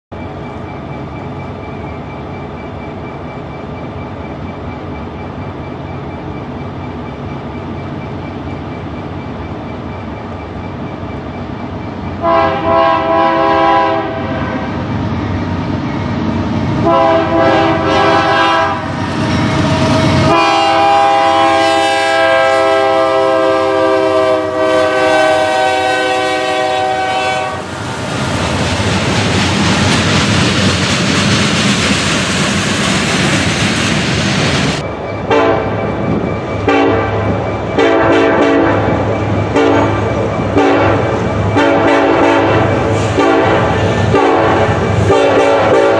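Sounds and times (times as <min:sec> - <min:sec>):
freight train running: 0:00.1 - 0:45.9
locomotive air horn blasts: 0:12.2 - 0:14.7, 0:16.8 - 0:18.9, 0:20.2 - 0:27.7, 0:35.3 - 0:35.7, 0:36.7 - 0:37.2, 0:37.8 - 0:38.9, 0:39.6 - 0:40.0, 0:40.6 - 0:41.0, 0:41.6 - 0:45.9
train wheel clatter: 0:26.3 - 0:45.9.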